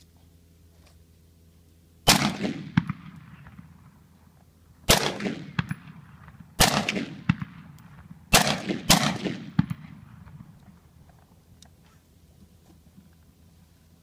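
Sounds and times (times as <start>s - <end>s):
gunshots with rolling echo: 2.0s - 4.0s, 4.8s - 10.6s.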